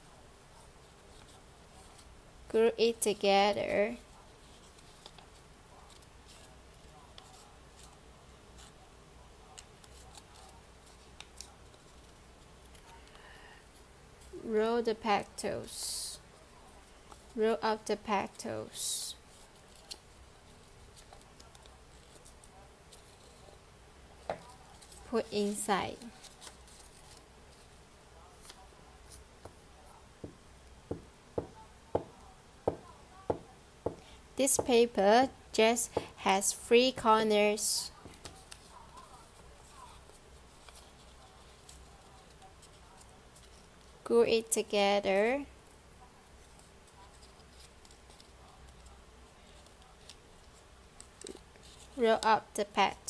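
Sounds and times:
paper crinkling: 9.4s - 13.2s, 19.2s - 23.6s, 24.4s - 29.9s, 37.6s - 44.0s, 46.2s - 52.2s.

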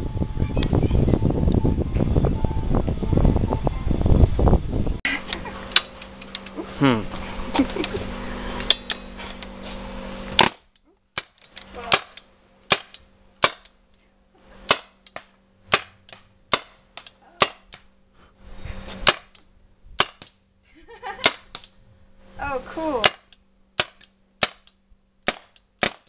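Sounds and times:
steady background noise: 0.0s - 26.0s
paintball marker shots: 23.0s - 26.0s.

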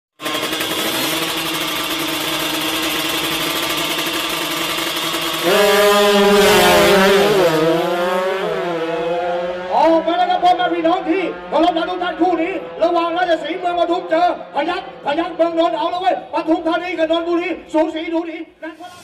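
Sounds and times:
motorcycle engines revving: 0.2s - 17.8s.

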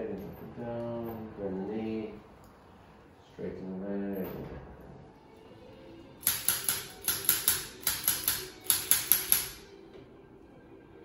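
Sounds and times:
chiropractic instrument clicking: 6.2s - 9.7s.

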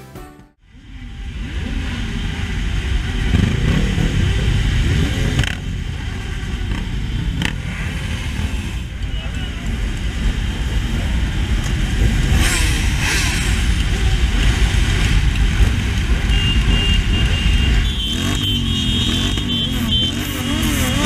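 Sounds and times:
motorcycles rumbling: 0.6s - 21.0s
engine revving: 0.9s - 21.0s.

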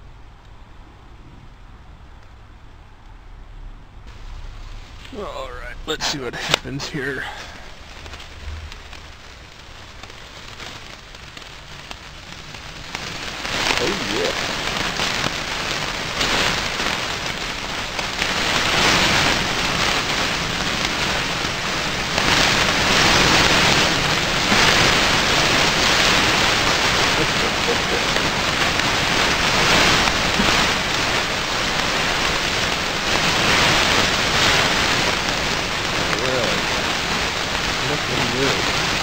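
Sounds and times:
fat crackling in flames: 0.0s - 39.0s
patties sizzling over charcoal: 4.1s - 39.0s.

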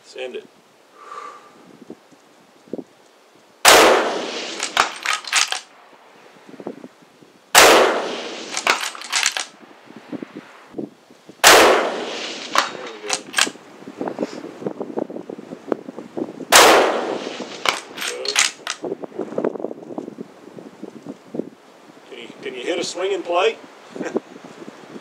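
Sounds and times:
rifle shots with echoes: 3.6s - 5.7s, 7.6s - 9.5s, 11.4s - 13.5s, 16.5s - 18.6s.

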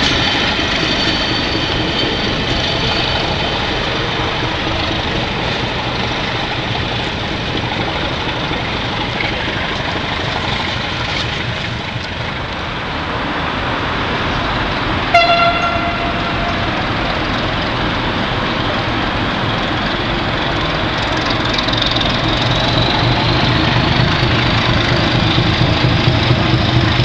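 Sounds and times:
diesel locomotive running: 0.0s - 27.0s
short high horn toot: 15.1s - 17.3s.

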